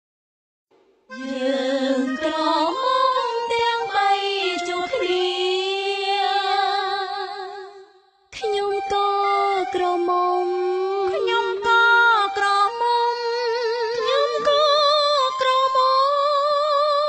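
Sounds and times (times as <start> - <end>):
woman singing high melody: 1.2 - 7.6, 8.4 - 17.0.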